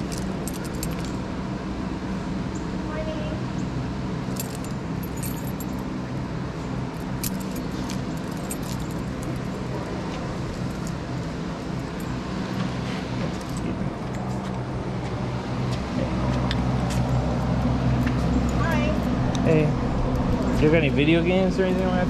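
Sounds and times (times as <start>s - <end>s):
light clicks and jingles: 0.0s - 1.2s, 4.3s - 5.8s, 7.2s - 9.6s
low engine hum: 0.0s - 22.0s.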